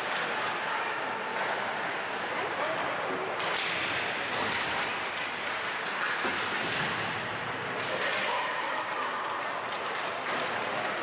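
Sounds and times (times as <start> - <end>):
hockey sticks and puck clicking: 3.3 - 11.0.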